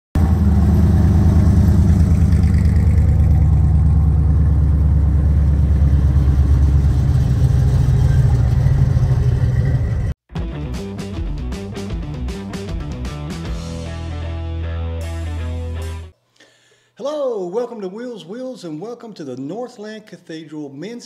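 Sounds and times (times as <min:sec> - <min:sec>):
car engines deep exhaust rumble: 0:00.2 - 0:10.2
rock guitar music: 0:10.3 - 0:16.1.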